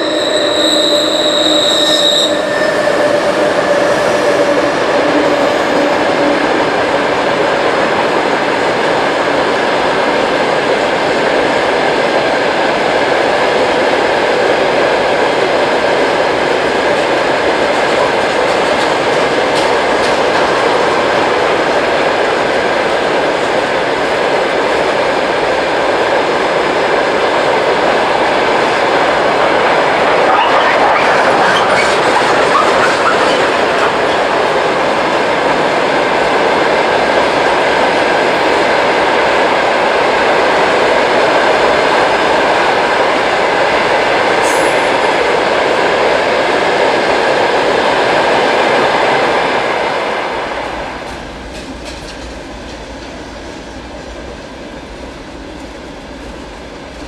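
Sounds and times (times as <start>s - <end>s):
locomotive tones: 0.0s - 7.4s, 29.0s - 35.3s
train wheels rumbling on rail: 0.0s - 57.0s.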